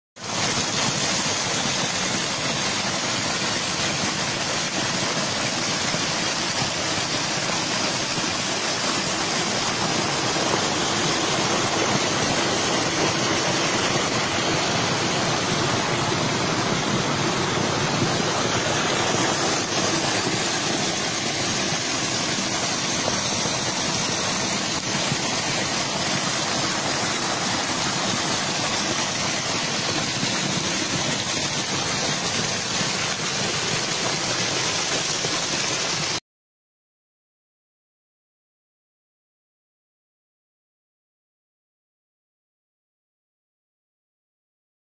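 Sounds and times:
small waterfall splashing: 0.2 - 36.2.

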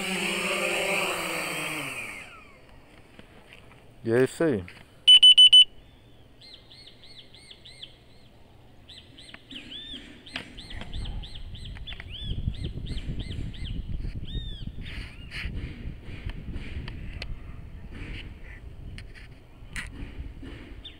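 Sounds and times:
small birds chirping: 5.8 - 15.4
low wind rumble on microphone: 10.6 - 20.9.

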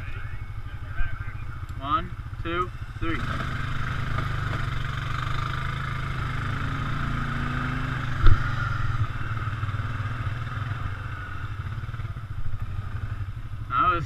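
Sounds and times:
atv engine under load: 0.0 - 14.0
sharp thump: 8.2 - 8.6.

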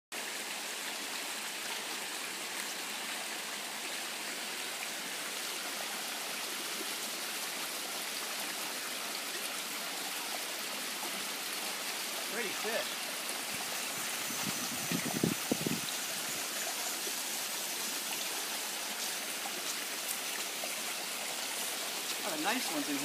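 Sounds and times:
water rushing over stones: 0.1 - 23.0.

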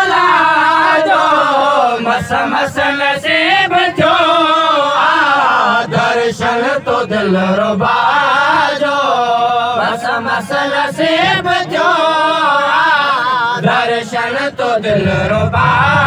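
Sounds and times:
men singing into microphones: 0.0 - 16.0.

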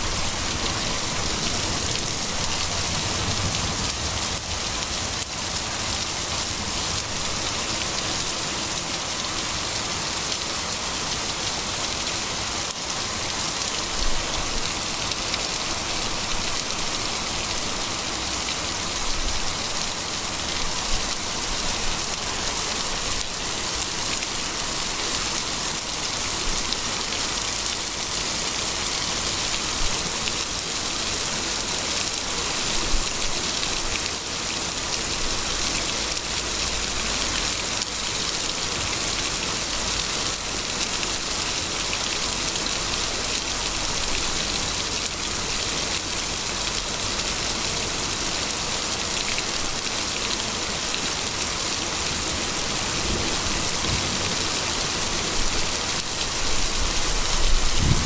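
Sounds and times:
heavy rain on wet road: 0.0 - 58.0.

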